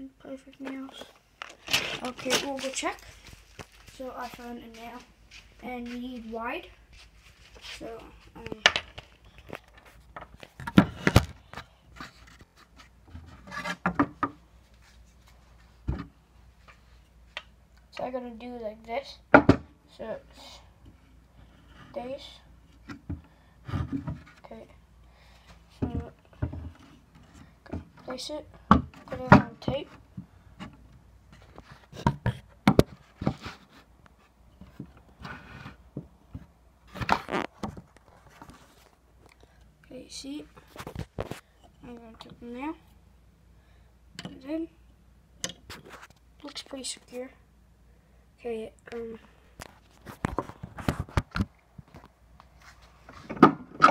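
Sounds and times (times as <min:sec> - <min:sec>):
soft rustle: 0:00.5 - 0:10.6, 0:14.5 - 0:17.4, 0:32.9 - 0:39.6, 0:45.7 - 0:47.4, 0:51.8 - 0:53.3
wood knocking and rubbing: 0:12.0 - 0:14.4.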